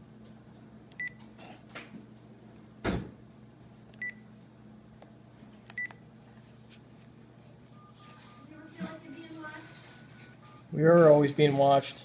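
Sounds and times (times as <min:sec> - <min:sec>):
low steady hum: 0:00.0 - 0:12.0
phone key beeps: 0:01.0 - 0:01.2, 0:05.8 - 0:06.0.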